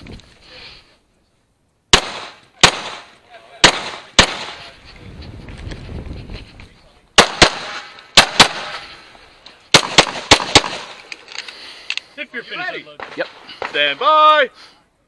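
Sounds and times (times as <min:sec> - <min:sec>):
pistol shots: 0:01.9 - 0:04.6, 0:07.2 - 0:08.9, 0:09.7 - 0:11.0.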